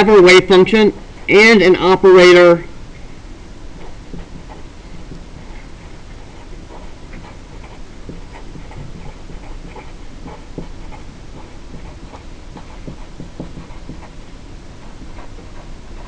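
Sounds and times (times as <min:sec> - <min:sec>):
low steady hum: 0:00.0 - 0:16.0
pen scratching on paper: 0:03.7 - 0:16.0.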